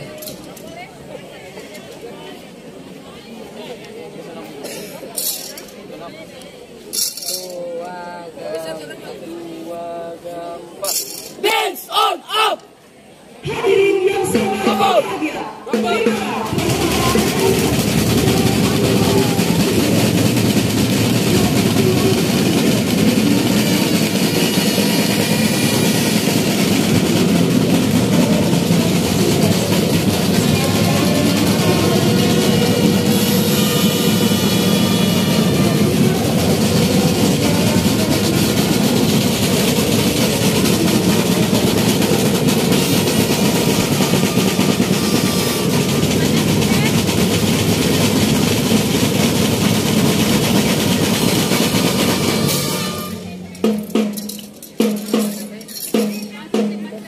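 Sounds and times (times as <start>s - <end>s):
marching drum line: 13.5s - 57.0s.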